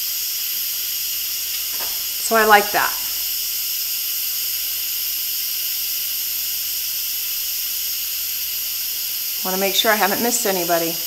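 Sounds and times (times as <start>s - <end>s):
steam hissing from valve: 0.0s - 11.0s.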